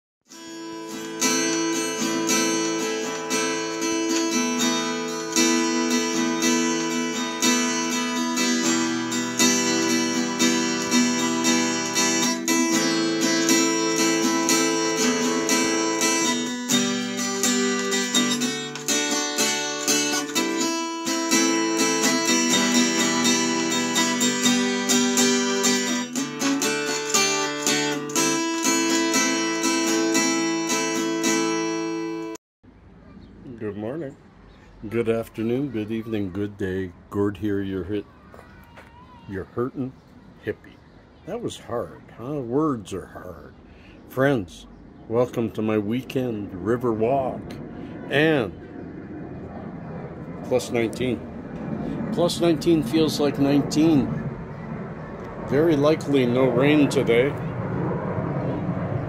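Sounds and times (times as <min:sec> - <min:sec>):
acoustic guitar chords: 0:00.3 - 0:32.4.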